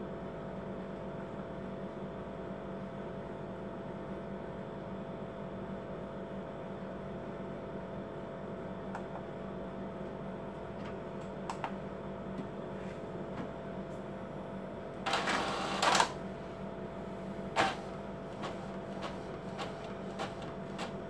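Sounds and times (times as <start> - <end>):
printer humming with clicks: 8.5 - 21.0
printer mechanism rasping whirr: 15.0 - 21.0.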